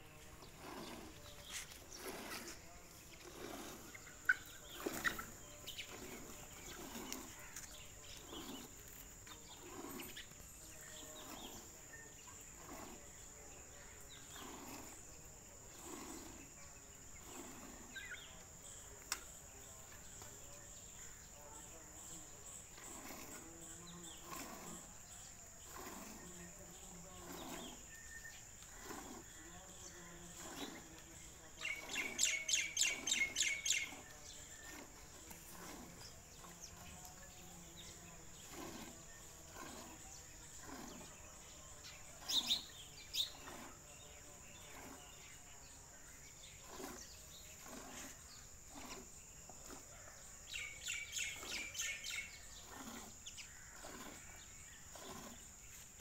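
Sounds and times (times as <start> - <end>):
birds chirping: 0.0 - 56.0
milk squirting into steel bucket: 0.4 - 13.1.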